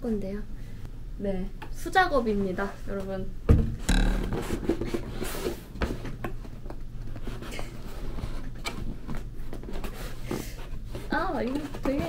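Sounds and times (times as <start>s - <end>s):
cardboard rustling and tapping: 8.7s - 12.0s.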